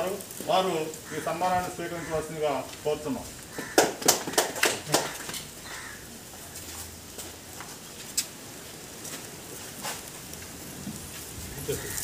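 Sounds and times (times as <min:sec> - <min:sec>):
background noise: 0:00.0 - 0:12.0
hand claps: 0:03.7 - 0:05.4.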